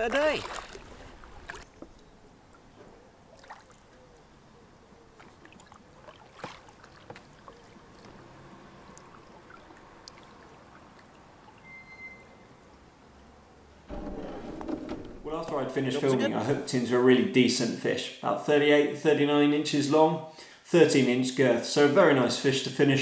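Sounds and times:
light splashes: 0.0s - 4.4s, 5.1s - 12.8s
paddle dips and drips: 0.0s - 4.5s, 5.1s - 12.9s.

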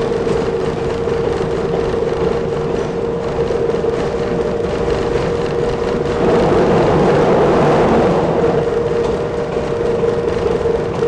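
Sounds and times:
railbus engine and wheels on rails: 0.0s - 11.0s.

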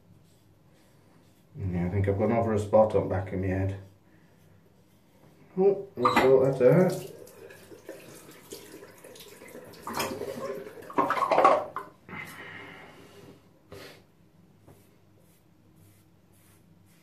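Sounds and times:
water splashing in a sink: 6.2s - 11.9s.

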